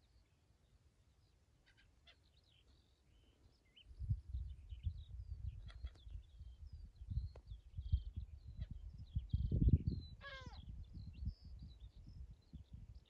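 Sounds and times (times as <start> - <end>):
small birds chirping: 0.0 - 13.0
wind buffeting microphone: 3.9 - 13.0.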